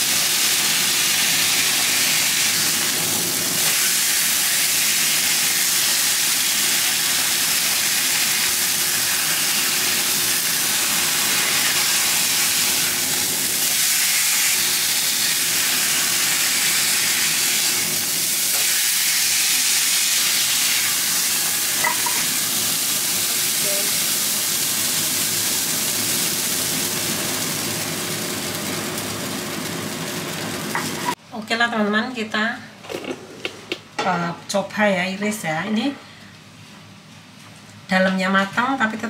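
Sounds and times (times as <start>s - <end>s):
steak sizzling in a frying pan: 0.0s - 31.2s.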